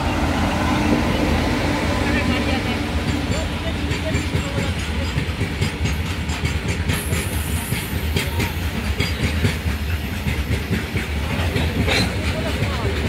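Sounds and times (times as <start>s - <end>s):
freight train rumbling past: 0.0s - 13.0s
train wheels clattering over rail joints: 2.8s - 13.0s.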